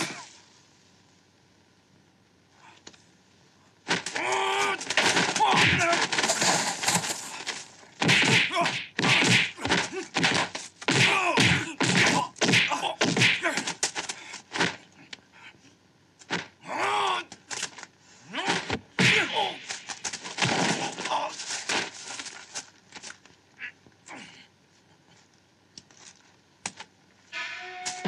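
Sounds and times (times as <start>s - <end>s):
grunts: 0.0s - 0.3s, 8.3s - 13.8s, 23.6s - 24.6s
punch and block impacts: 4.8s - 7.0s, 8.0s - 13.8s, 18.4s - 21.1s
loud yell: 16.6s - 17.3s.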